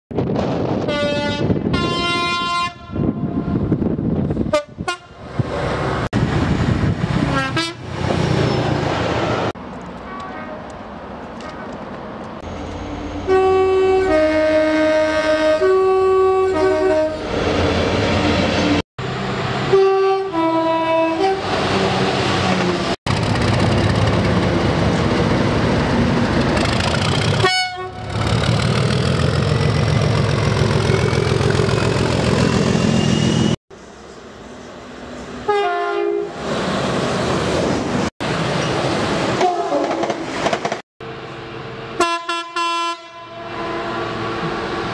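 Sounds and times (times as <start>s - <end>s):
two-tone train horn: 0.9s - 3.6s, 4.5s - 5.2s, 7.3s - 7.8s, 13.2s - 17.3s, 19.7s - 21.5s, 27.4s - 28.1s, 35.4s - 36.3s, 39.4s - 40.0s, 42.0s - 44.1s
diesel locomotive engine passing: 2.9s - 44.9s.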